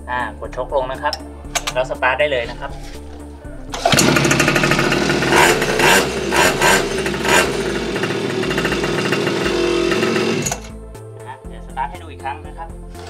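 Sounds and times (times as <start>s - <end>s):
small engine pull-started: 3.7s - 10.7s
engine throttle blips: 3.7s - 10.8s.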